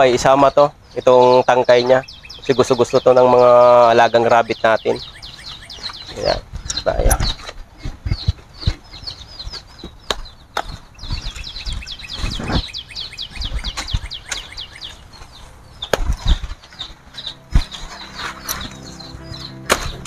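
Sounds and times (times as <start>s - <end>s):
bird chirping: 0.0s - 20.0s
leafy branches rustling: 10.5s - 20.0s
leaves and stalks snapping: 19.6s - 20.0s.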